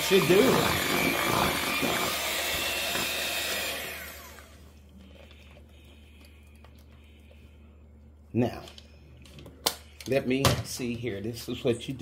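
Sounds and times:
electric hand mixer running: 0.0s - 4.6s
faint motor hum: 0.0s - 10.0s.

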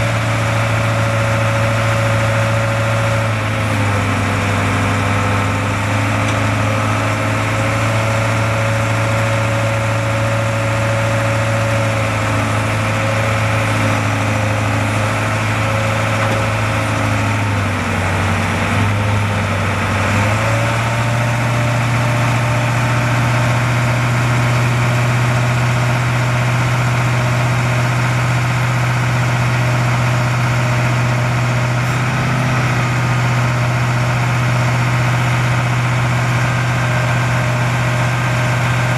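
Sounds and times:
diesel truck engine running: 0.0s - 38.9s.

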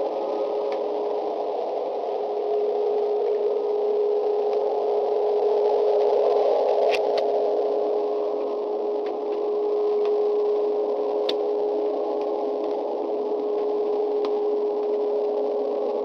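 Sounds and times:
droning hum: 0.0s - 16.0s
faint clicks: 11.2s - 11.4s.

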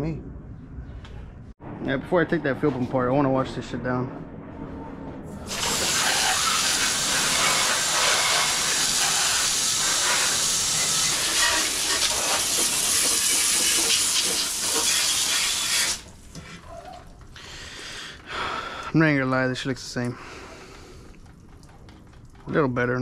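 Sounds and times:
hose spray hissing on metal: 5.5s - 16.4s.

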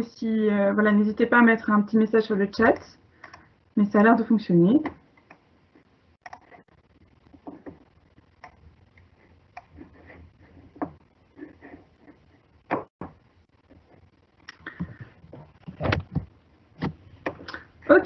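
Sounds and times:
small clicks and soft knocks: 6.2s - 6.6s.

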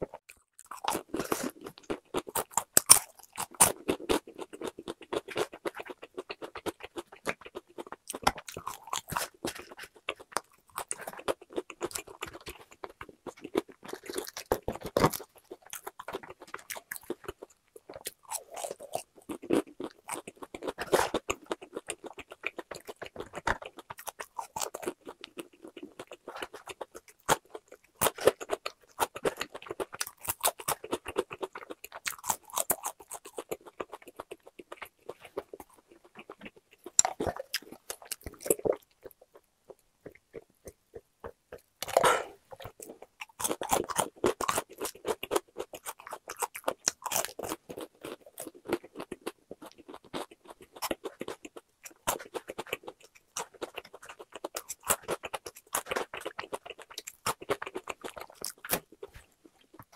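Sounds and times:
crunchy chewing of fried chicken: 0.0s - 59.9s
loud swallow: 41.9s - 42.4s.

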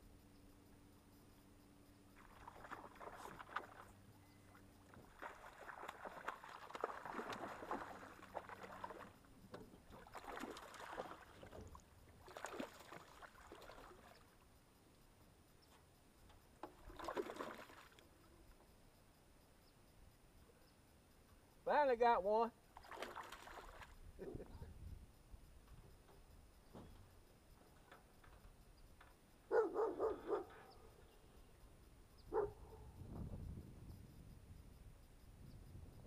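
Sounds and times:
fish splashing in water: 2.2s - 4.0s, 4.9s - 14.2s, 16.7s - 18.0s, 22.8s - 24.0s.

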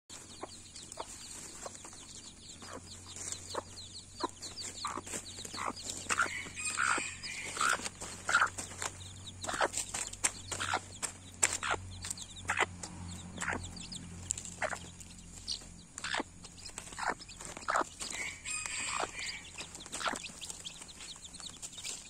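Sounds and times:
chicks peeping: 0.1s - 22.0s
hen clucking: 0.1s - 22.0s.

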